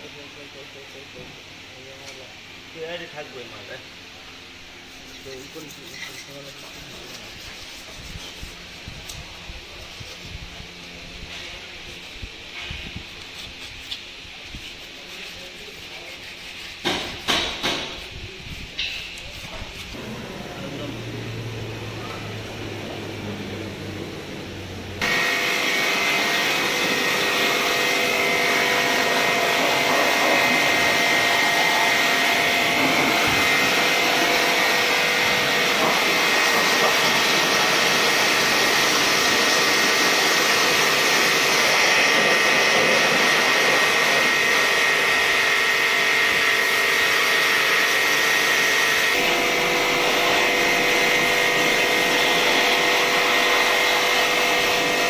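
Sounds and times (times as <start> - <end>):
pressure washer spraying water: 20.0 - 55.0.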